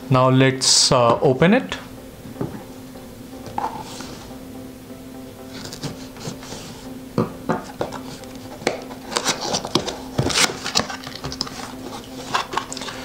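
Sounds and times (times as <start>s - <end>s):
faint steady hum: 0.0s - 13.0s
cardboard box being opened: 7.8s - 13.0s.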